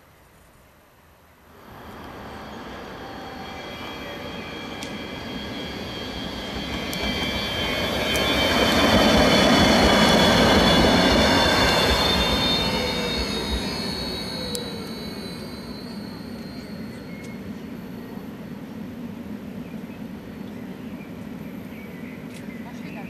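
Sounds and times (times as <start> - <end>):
high whining wheels and drive: 1.6 - 17.4
tram rumbling on rails: 1.6 - 18.7.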